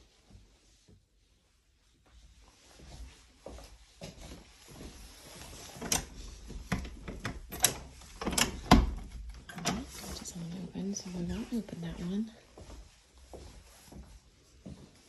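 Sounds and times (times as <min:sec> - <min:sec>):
door clicks and knocks: 0:06.7 - 0:09.9
heavy door thump: 0:08.2 - 0:09.1.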